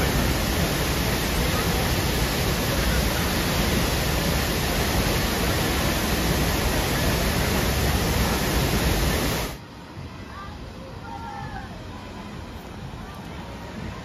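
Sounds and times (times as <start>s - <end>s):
waterfall rushing: 0.0s - 9.6s.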